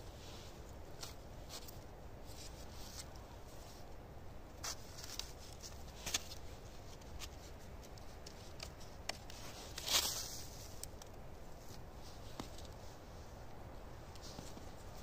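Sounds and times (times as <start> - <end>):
light wooden clicks and rustles: 0.0 - 15.0
scuffing rustle: 4.6 - 10.8.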